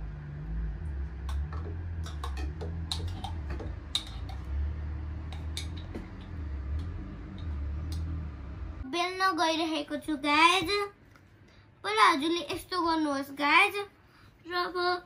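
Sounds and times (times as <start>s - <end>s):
low hum: 0.0s - 10.4s.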